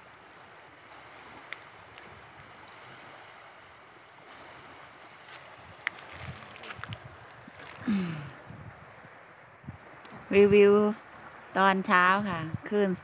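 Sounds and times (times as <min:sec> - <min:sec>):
waves lapping on gravel shore: 0:00.0 - 0:13.0.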